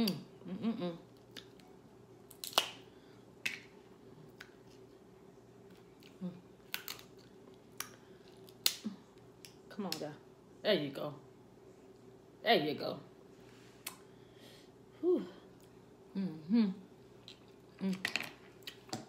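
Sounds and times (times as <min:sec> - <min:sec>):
crab shells cracking: 0:02.3 - 0:02.8, 0:06.6 - 0:08.8.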